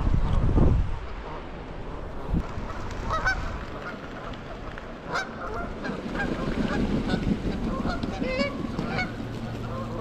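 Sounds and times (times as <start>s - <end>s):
water splashing: 1.2s - 10.0s
geese honking: 2.6s - 10.0s.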